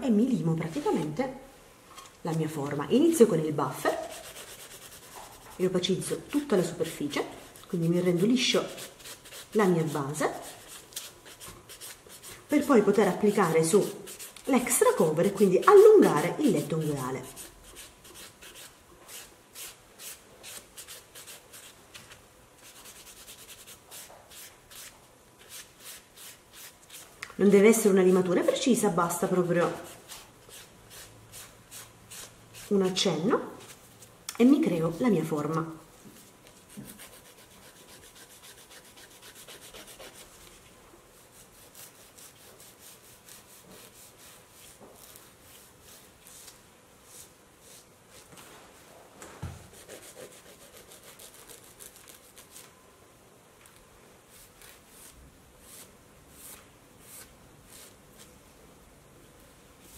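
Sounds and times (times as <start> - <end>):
nail file rasping: 3.9 - 5.5, 8.5 - 12.8, 15.3 - 21.8, 36.7 - 40.3, 49.7 - 52.4
nail buffer rubbing fingernail: 36.7 - 40.4.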